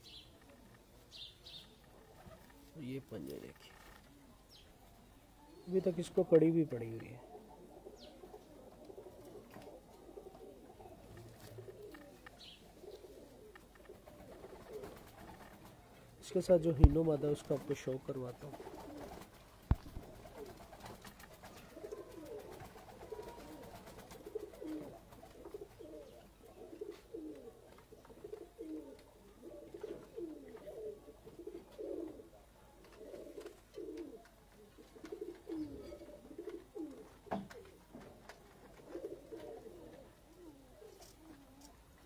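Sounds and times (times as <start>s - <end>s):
pigeons cooing: 7.0s - 15.9s, 18.4s - 42.0s.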